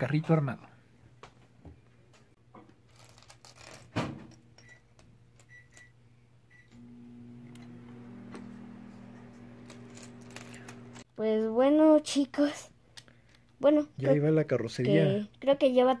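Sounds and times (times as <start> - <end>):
steady low hum: 6.5 - 11.0
plastic pieces clicking and clattering: 9.6 - 10.8.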